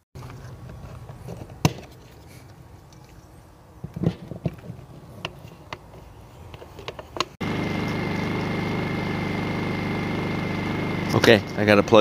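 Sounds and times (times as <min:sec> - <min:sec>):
portable generator running: 0:07.4 - 0:12.0.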